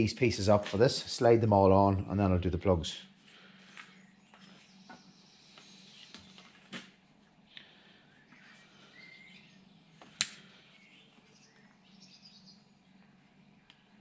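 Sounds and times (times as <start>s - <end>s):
faint high chirps: 8.1s - 9.7s.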